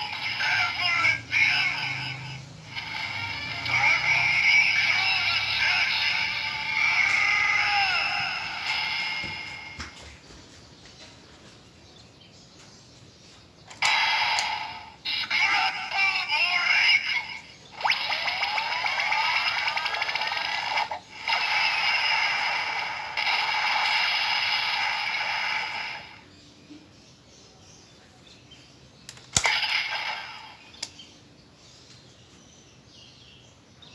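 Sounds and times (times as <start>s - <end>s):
toy electronic sound effects: 0.0s - 9.8s, 13.7s - 26.2s, 29.2s - 30.9s
sharp click: 29.0s - 31.0s.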